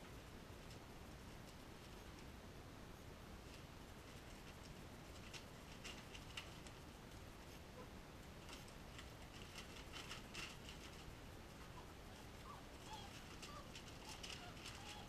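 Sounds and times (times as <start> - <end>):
puppy claws scratching newspaper: 8.4 - 15.0.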